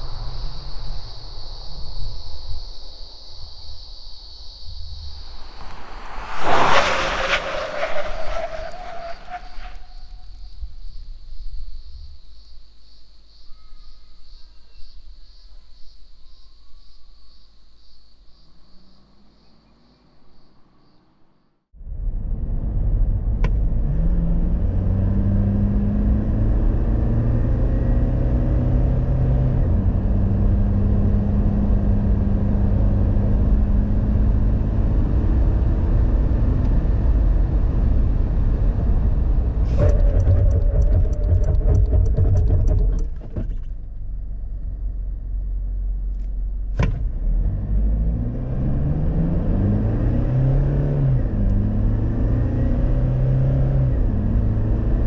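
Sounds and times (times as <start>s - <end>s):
diesel engine accelerating: 21.9s - 55.0s.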